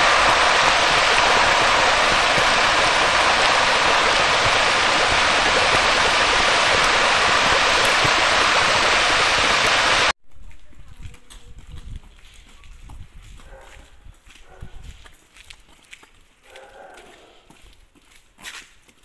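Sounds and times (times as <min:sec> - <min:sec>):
steady rushing noise: 0:00.0 - 0:10.1.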